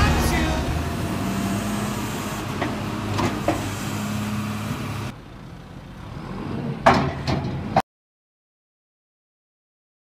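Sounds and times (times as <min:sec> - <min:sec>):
diesel engine running: 0:00.0 - 0:07.8.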